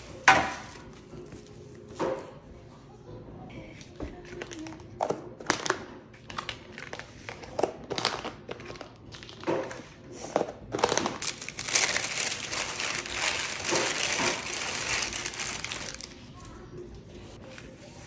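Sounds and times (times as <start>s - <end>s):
parchment paper crinkling: 10.8s - 18.0s.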